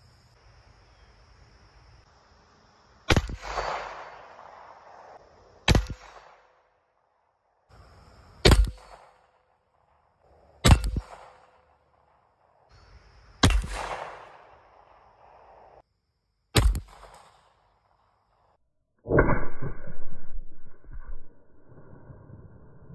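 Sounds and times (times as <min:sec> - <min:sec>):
pistol shots with echo: 0:03.1 - 0:04.9, 0:10.6 - 0:11.7, 0:13.4 - 0:15.5.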